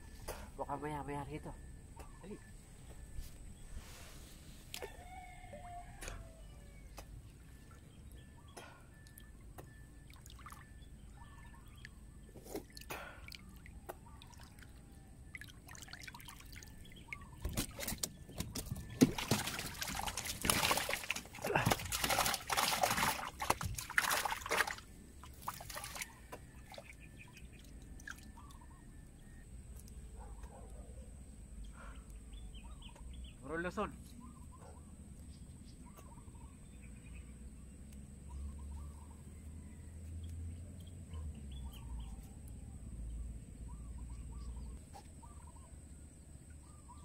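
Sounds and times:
water lapping: 0:10.0 - 0:28.7
water splashing from swimmer: 0:15.4 - 0:27.0.

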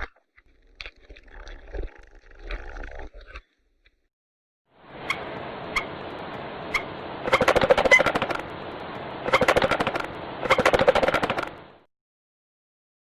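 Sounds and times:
steady background hiss: 0:04.8 - 0:10.5
stork clattering its bill: 0:09.3 - 0:11.5.

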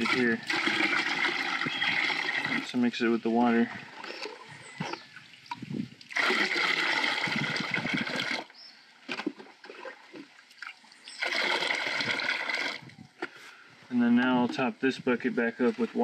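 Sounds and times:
liquid sloshing: 0:00.0 - 0:02.8, 0:03.7 - 0:12.9
liquid pouring into a bucket: 0:00.0 - 0:08.5, 0:09.2 - 0:13.0.

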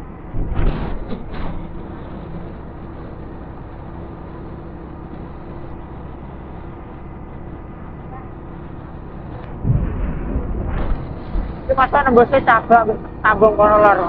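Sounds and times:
faint steady hum: 0:00.0 - 0:14.0
loud rushes of noise: 0:00.0 - 0:14.0
motorcycle engine rumble: 0:00.0 - 0:14.0.

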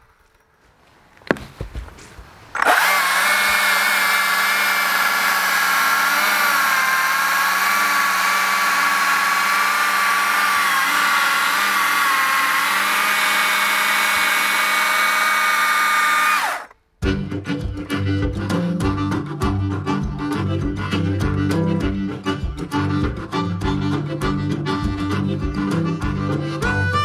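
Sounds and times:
electric chainsaw cutting log: 0:02.5 - 0:16.8
music: 0:17.0 - 0:27.0.

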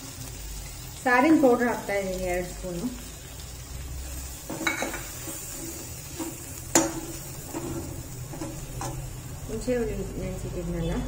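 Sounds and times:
light frying sizzle: 0:00.0 - 0:11.0
ladle scraping iron pan: 0:04.4 - 0:09.1
ladle knocking on pan: 0:06.2 - 0:09.0.

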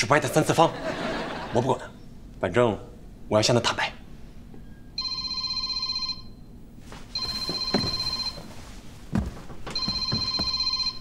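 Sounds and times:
trilling electronic phone ring: 0:05.0 - 0:06.5, 0:07.1 - 0:08.5, 0:09.8 - 0:11.0.

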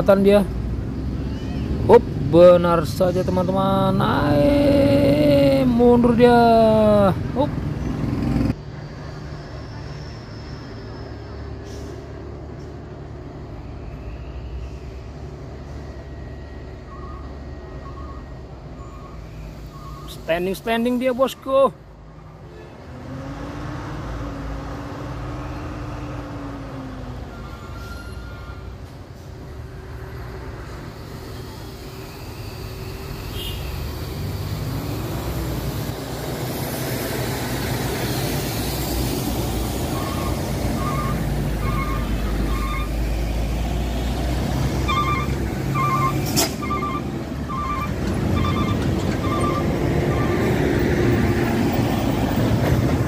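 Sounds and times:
diesel truck engine rumbling: 0:00.0 - 0:53.0
passing car road noise: 0:00.0 - 0:53.0
short beeps: 0:40.0 - 0:43.0, 0:44.9 - 0:50.5.

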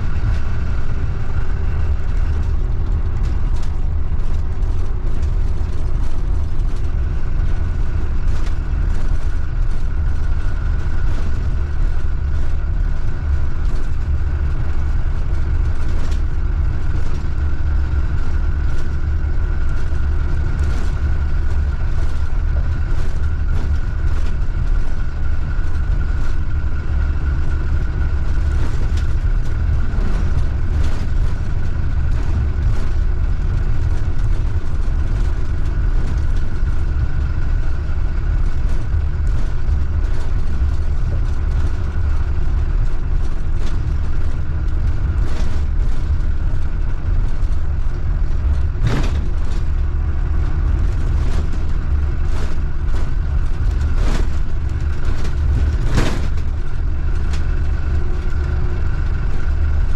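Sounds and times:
bus engine and road rumble: 0:00.0 - 0:59.9
rattles and knocks from bus body: 0:00.0 - 0:59.9
steady high whine: 0:00.0 - 0:59.9.

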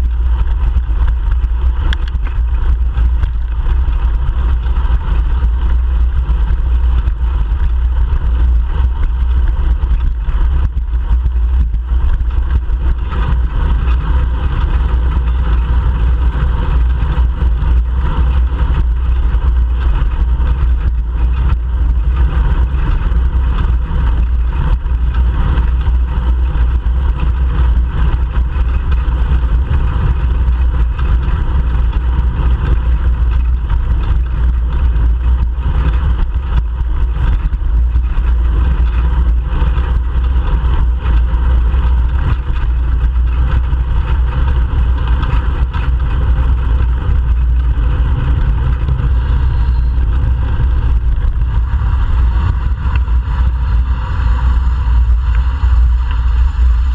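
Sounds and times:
wind buffeting microphone: 0:00.0 - 0:56.9
car traffic: 0:45.2 - 0:56.9.

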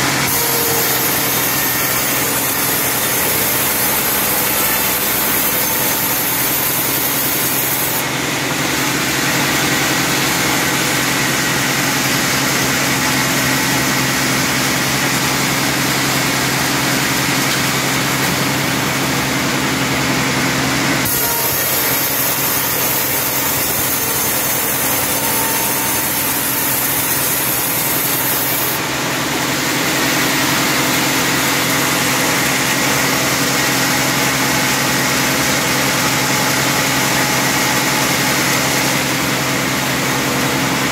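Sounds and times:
band saw cutting a log: 0:00.0 - 0:40.9.

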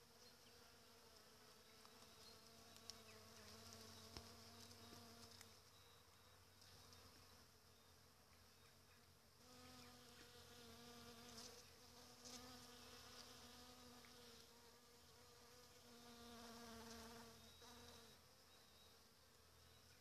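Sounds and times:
honeybee buzzing: 0:00.2 - 0:05.5, 0:09.4 - 0:18.2.

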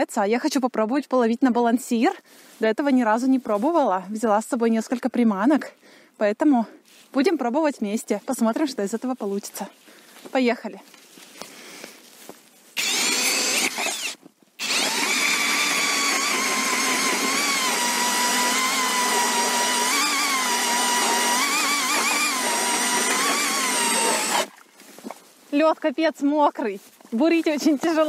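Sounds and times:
cordless drill motor whining: 0:12.8 - 0:24.5.

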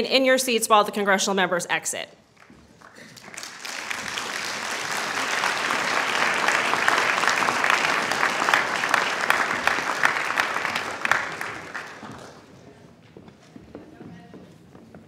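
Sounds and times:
audience applauding: 0:02.3 - 0:12.6.

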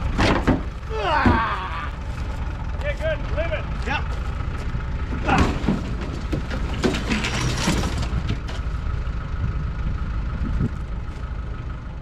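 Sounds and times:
metal truck bed clanking and scraping: 0:00.0 - 0:08.8
tractor engine idling: 0:00.0 - 0:12.0.

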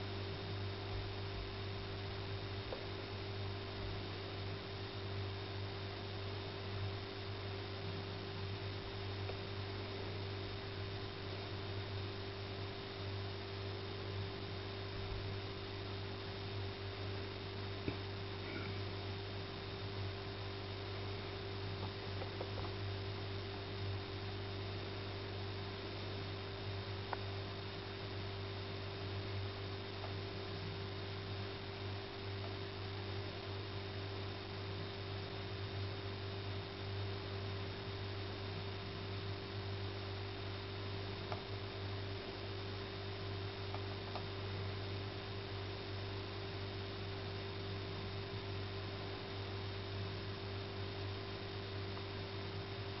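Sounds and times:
low electrical hum: 0:00.0 - 0:53.0
faint ticks: 0:27.1 - 0:27.3.

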